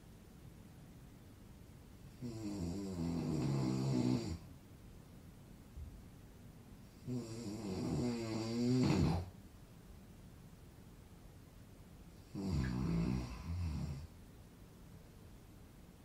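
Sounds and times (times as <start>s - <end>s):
man snoring: 2.2s - 4.5s, 7.0s - 9.3s, 12.2s - 14.1s.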